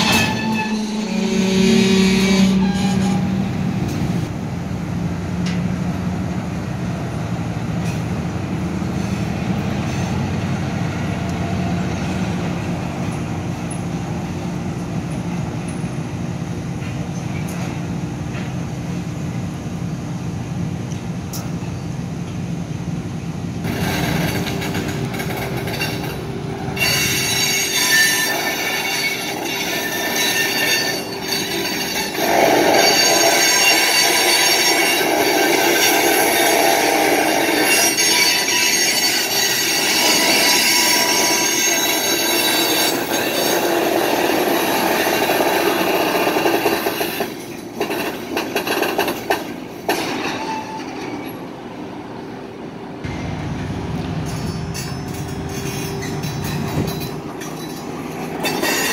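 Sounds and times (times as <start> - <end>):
train wheels squealing: 0.0 - 3.6, 26.8 - 49.4, 54.3 - 58.9
train rumbling on rails: 0.0 - 58.9.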